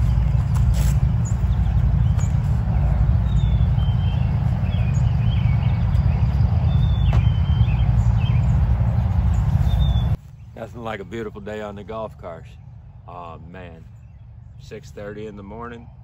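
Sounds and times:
loud low rumble: 0:00.0 - 0:10.2.

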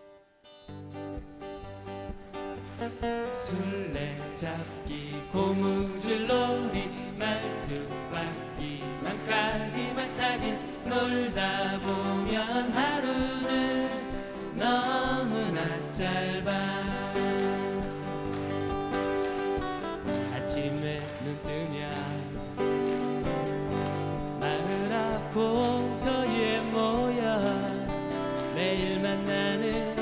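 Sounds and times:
acoustic guitars picked and strummed: 0:00.0 - 0:30.0
man singing: 0:03.2 - 0:18.3, 0:20.0 - 0:22.8, 0:24.3 - 0:30.0.

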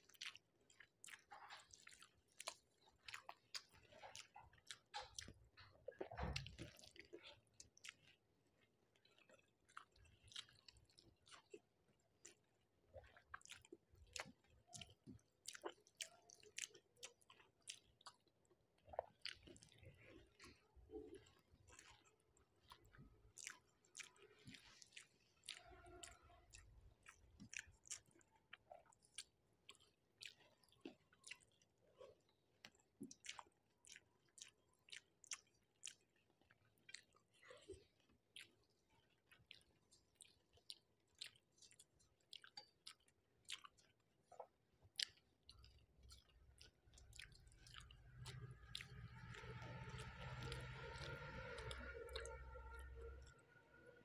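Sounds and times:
person chewing with wet mouth sounds: 0:00.0 - 0:54.0
low hum: 0:48.1 - 0:54.0.

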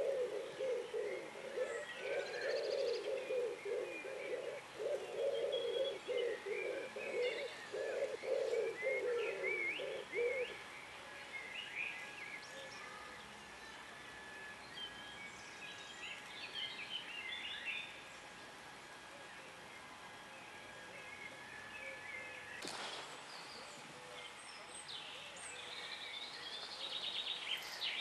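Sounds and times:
dove cooing: 0:00.0 - 0:10.6
songbirds chirping and whistling: 0:00.0 - 0:28.0.

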